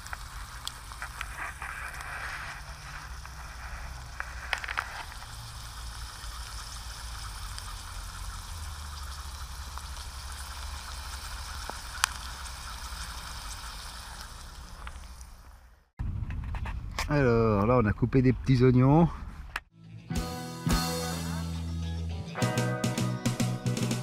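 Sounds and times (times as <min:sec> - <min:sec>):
simmering pot fizzing hiss: 0:00.0 - 0:15.7
embers crackling: 0:00.0 - 0:15.9.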